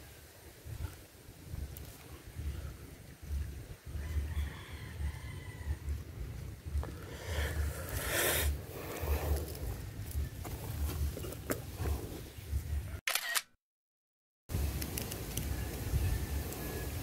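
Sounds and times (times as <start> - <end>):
low wind rumble: 0.0 - 13.0, 14.5 - 17.0
rustling: 6.7 - 12.7.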